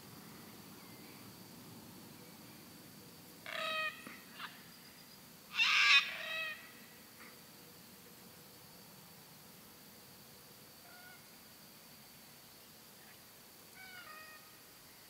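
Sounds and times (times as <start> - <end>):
cockatoo calling: 3.4 - 4.6, 5.5 - 7.3, 10.9 - 11.3, 13.8 - 14.6.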